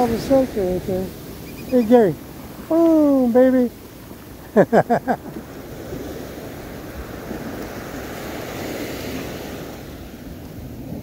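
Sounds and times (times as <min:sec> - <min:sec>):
person's voice: 0:00.0 - 0:01.1, 0:01.7 - 0:03.8
surf washing up beach: 0:00.0 - 0:11.0.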